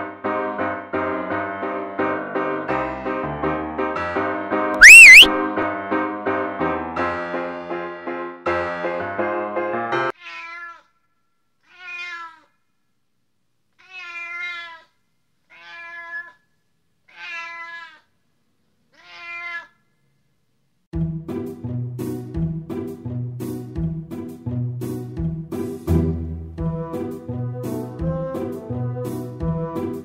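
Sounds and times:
cat meowing: 0:04.8 - 0:05.3, 0:10.2 - 0:10.9, 0:11.6 - 0:12.5, 0:13.8 - 0:14.9, 0:15.5 - 0:16.4, 0:17.1 - 0:18.1, 0:18.9 - 0:19.8.

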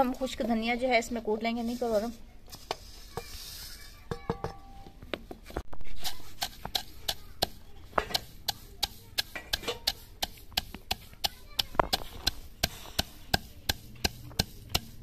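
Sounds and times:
wooden pestle pounding: 0:05.9 - 0:15.0.

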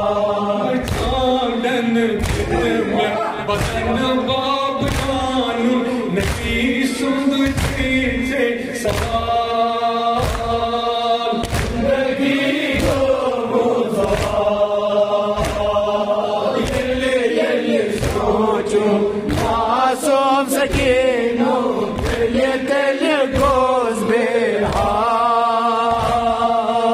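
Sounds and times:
men chanting a lament: 0:00.0 - 0:26.9.

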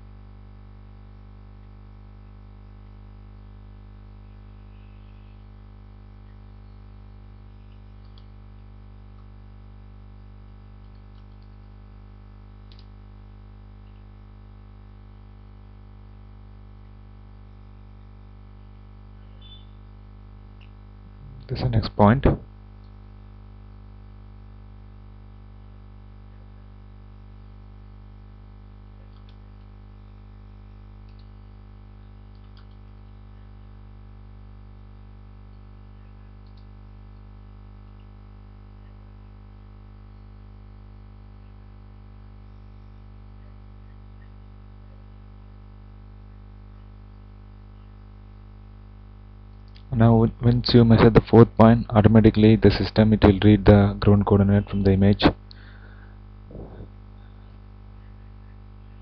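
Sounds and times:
steady electrical hum: 0:00.0 - 0:59.0
faint clicks: 0:07.6 - 0:08.4, 0:10.4 - 0:11.8, 0:12.7 - 0:13.0, 0:29.0 - 0:29.7, 0:31.0 - 0:31.4, 0:32.3 - 0:32.9, 0:36.4 - 0:37.3.

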